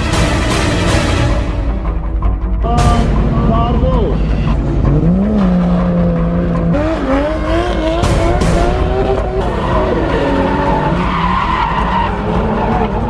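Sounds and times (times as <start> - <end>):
car engines revving hard: 3.0 - 13.0
continuous tyre squeal: 4.4 - 13.0.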